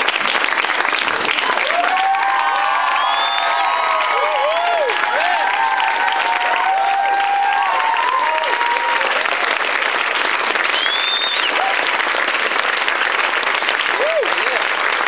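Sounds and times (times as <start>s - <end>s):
audience applauding: 0.0s - 15.0s
shouts and whoops: 1.6s - 9.4s, 10.8s - 11.9s, 13.9s - 14.6s.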